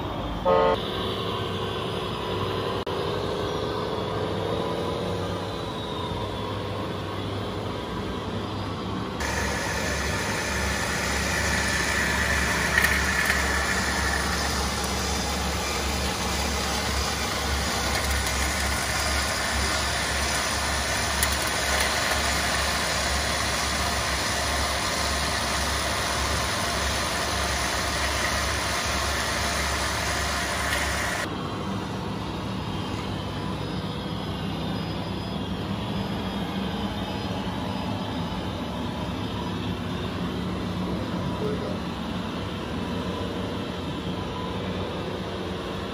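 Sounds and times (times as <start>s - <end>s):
vehicle engine humming: 0.0s - 45.9s.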